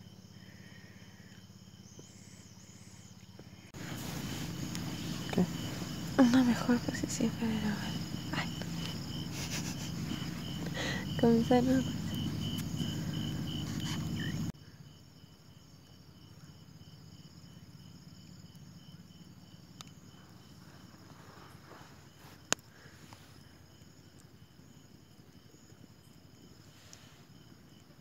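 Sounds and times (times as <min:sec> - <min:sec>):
high insect hum: 0:00.0 - 0:28.0
night insects chirping: 0:00.0 - 0:28.0
low rumbling noise: 0:03.8 - 0:14.5.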